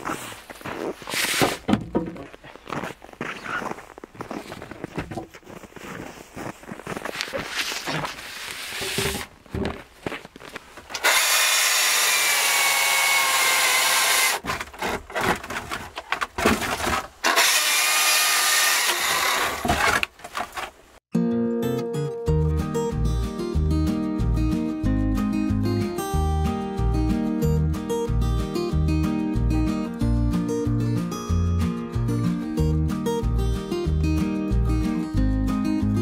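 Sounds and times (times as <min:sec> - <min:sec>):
wood knocking and rubbing: 0:01.2 - 0:02.4
saw cutting wood: 0:10.9 - 0:15.6, 0:16.5 - 0:20.1.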